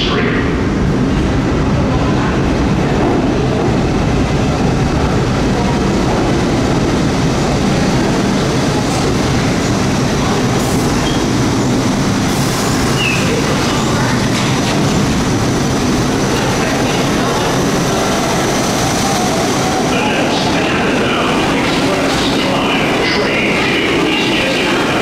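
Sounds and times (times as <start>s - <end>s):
subway train rumble: 0.0s - 25.0s
train wheel squeal: 11.0s - 11.3s, 12.9s - 13.4s.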